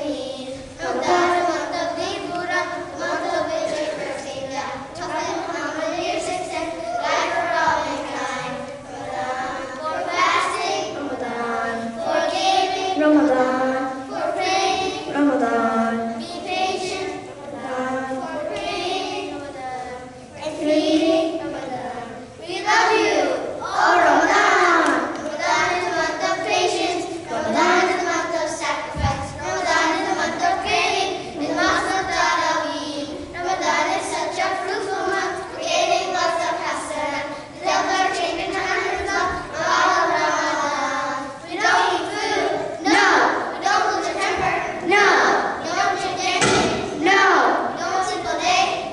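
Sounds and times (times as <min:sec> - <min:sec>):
children singing: 0:00.0 - 0:48.9
low thump: 0:28.9 - 0:29.3, 0:46.3 - 0:47.0.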